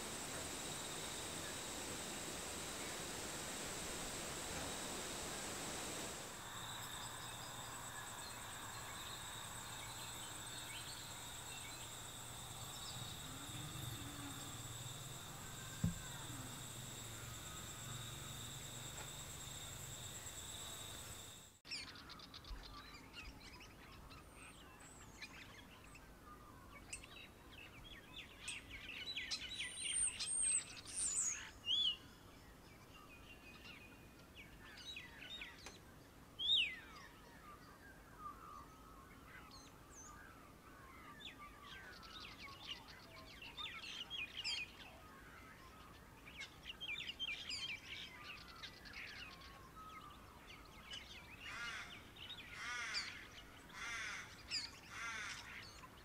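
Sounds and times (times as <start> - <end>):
high-pitched buzz: 0.0 - 21.6
faint low hum: 0.0 - 56.0.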